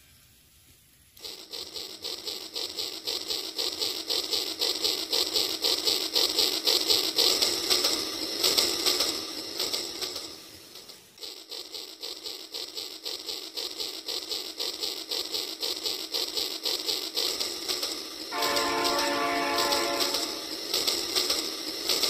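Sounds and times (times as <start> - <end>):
toy steam train chugging: 0.0 - 22.0
toy train whistle: 18.2 - 21.3.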